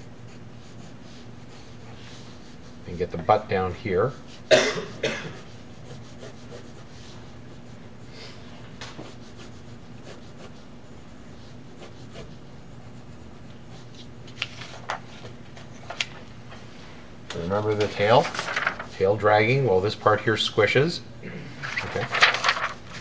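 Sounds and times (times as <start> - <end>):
pencil scratching on paper: 0.0 - 2.9, 5.4 - 8.1, 8.9 - 14.1
steady low hum: 0.0 - 23.0
paper rustling: 14.0 - 16.6, 17.4 - 19.1, 21.6 - 23.0.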